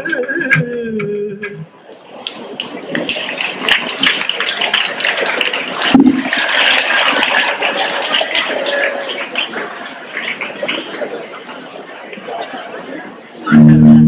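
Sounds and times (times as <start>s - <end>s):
audience applauding: 2.0s - 12.8s.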